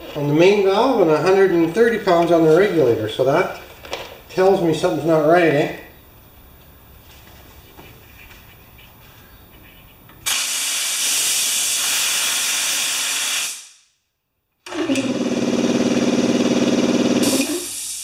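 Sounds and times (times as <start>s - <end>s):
compressed air hissing: 10.2s - 13.9s, 17.2s - 18.0s.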